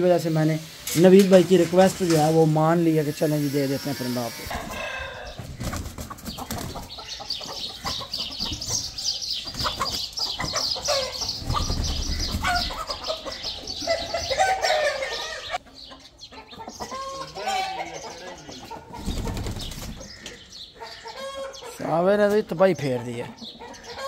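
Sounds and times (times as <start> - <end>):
chickens squawking and clucking: 0.0 - 24.0
chickens flapping wings: 5.4 - 6.9, 11.3 - 12.6, 18.9 - 20.1.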